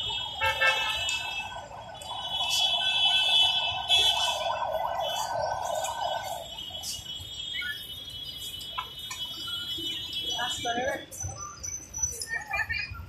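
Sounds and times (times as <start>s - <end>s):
high-pitched alarm tone: 0.0s - 8.1s
city street traffic: 0.0s - 13.0s.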